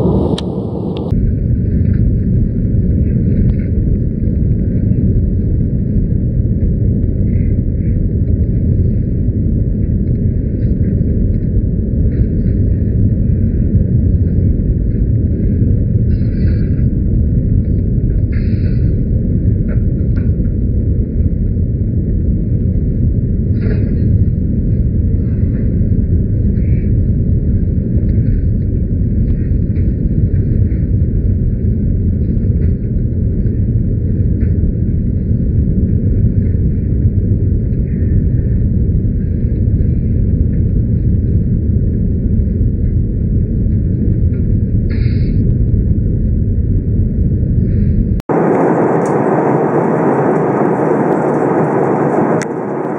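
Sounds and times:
airliner cabin engine rumble: 0.0s - 52.9s.

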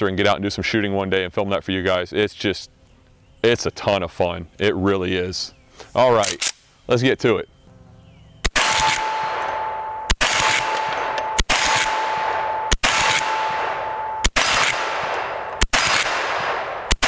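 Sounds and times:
rifle shots with ringing echo: 8.4s - 17.0s.

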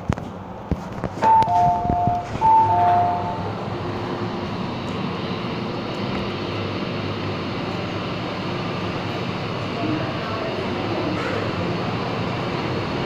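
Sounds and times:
train hum and hiss: 0.0s - 13.0s
two-tone train door chime: 1.2s - 3.6s.

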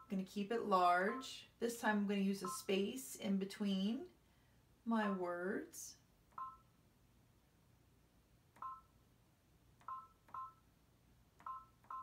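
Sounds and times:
two-tone touchscreen beeps: 2.4s - 2.7s, 6.4s - 6.7s, 8.6s - 8.9s, 9.8s - 10.6s, 11.4s - 12.0s.

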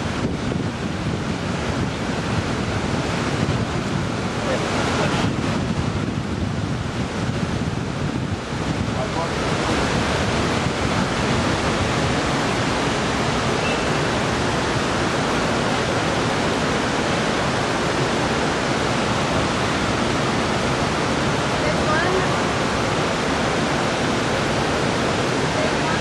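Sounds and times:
steady rushing noise: 0.0s - 26.0s.

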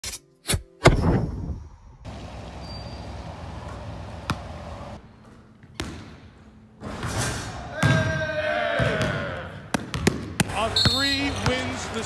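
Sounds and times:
basketball bouncing on hard court: 3.5s - 4.8s, 5.6s - 6.2s, 9.7s - 10.5s.

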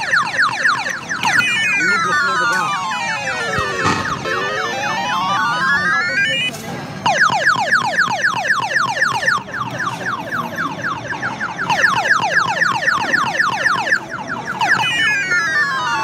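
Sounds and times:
claw machine electronic chirps: 1.1s - 6.5s.

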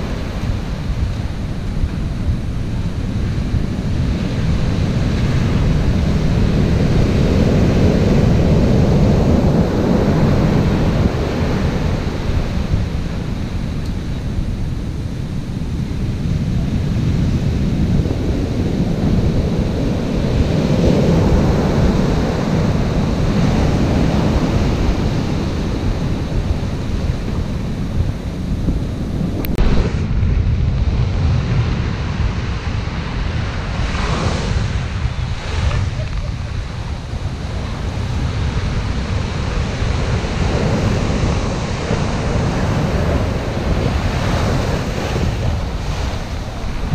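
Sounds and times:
surf breaking on beach: 0.0s - 46.9s
wind buffeting microphone: 0.0s - 46.9s.

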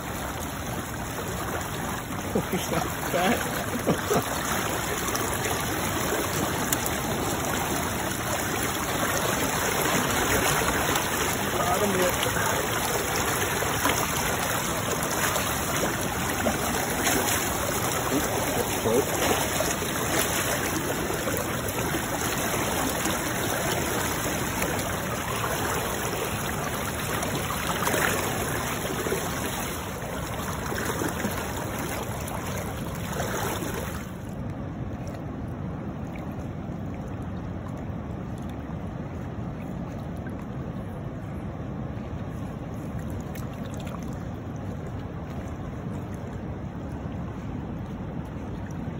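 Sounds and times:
river current rushing: 0.0s - 34.3s
water splashing around hands: 1.4s - 34.2s.

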